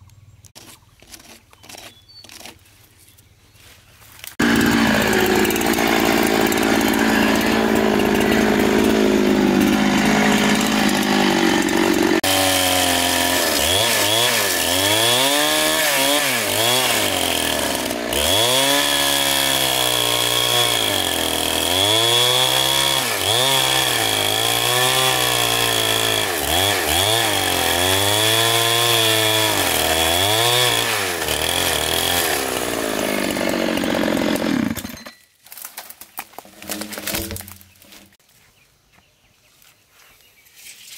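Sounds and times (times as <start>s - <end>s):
chainsaw cutting wood: 0.5s - 2.6s, 4.2s - 38.2s.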